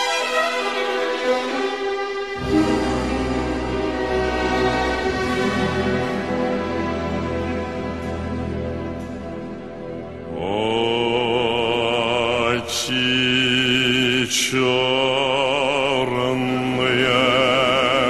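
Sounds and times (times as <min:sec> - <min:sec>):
steady low drone: 0:02.4 - 0:14.0
person singing with vibrato: 0:10.3 - 0:18.0.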